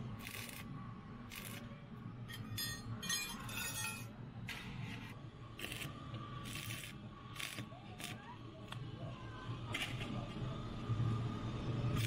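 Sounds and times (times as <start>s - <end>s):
arc welding crackle: 0.0s - 1.7s, 5.6s - 8.2s
high ringing tones: 2.3s - 4.2s.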